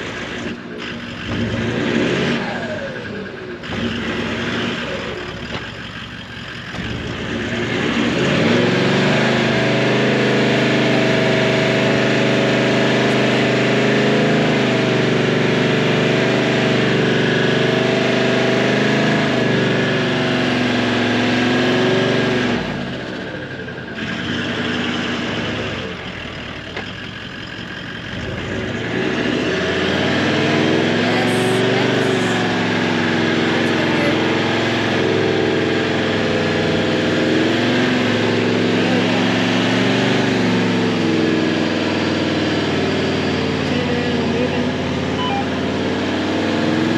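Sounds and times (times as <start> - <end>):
engine revving under load: 0.0 - 46.9.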